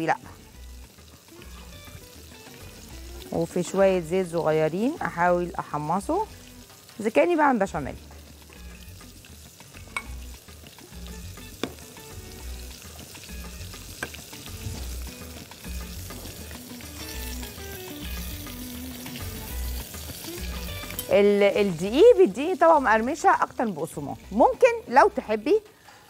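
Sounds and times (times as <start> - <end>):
oil sizzling in a pan: 0.0 - 26.0
utensil clicking against pan: 14.0 - 14.4.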